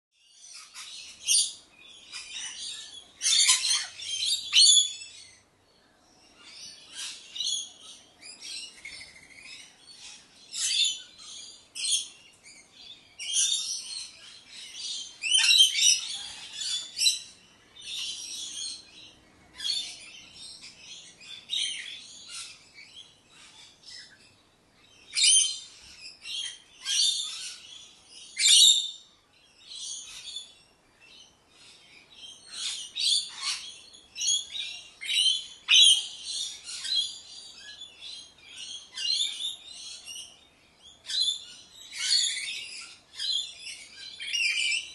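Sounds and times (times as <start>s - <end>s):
lorikeets screeching: 0.4s - 5.4s, 6.4s - 24.2s, 25.0s - 29.0s, 31.1s - 44.9s.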